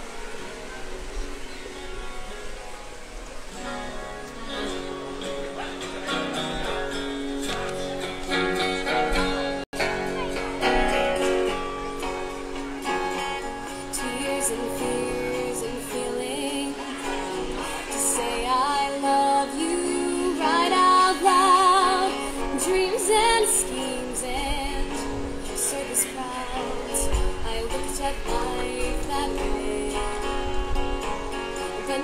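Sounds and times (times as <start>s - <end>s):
strummed acoustic guitar: 0.0s - 32.0s
woman singing with vibrato: 13.7s - 32.0s.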